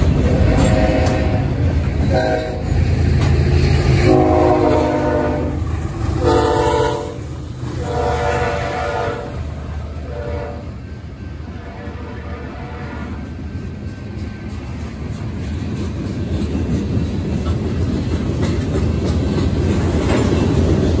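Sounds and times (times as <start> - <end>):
train horn blasts: 0.3 - 2.8, 3.9 - 13.4.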